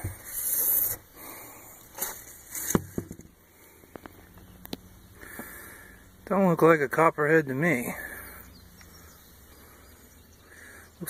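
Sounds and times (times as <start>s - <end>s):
light scrapes: 0.0s - 1.1s
handling hiss: 0.0s - 3.1s.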